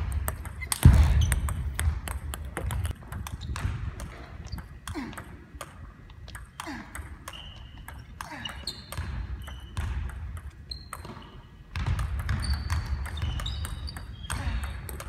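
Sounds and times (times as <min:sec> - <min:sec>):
table tennis ball clicking: 0:00.1 - 0:11.1.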